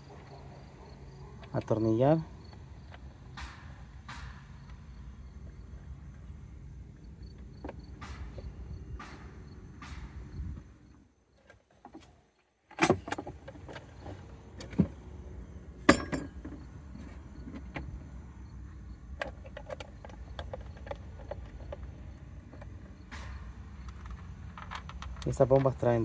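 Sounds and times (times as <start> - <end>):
tools and parts clicking: 19.2 - 25.8.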